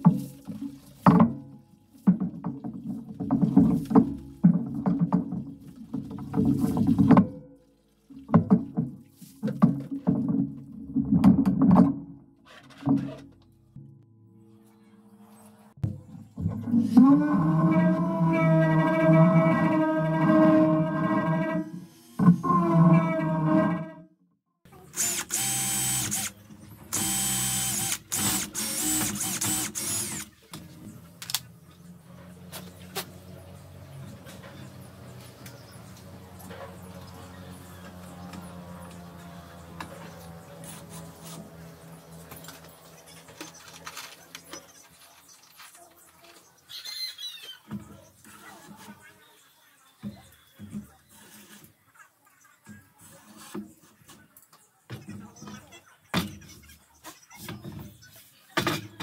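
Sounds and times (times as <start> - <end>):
cordless drill drilling into wood: 24.9 - 30.4.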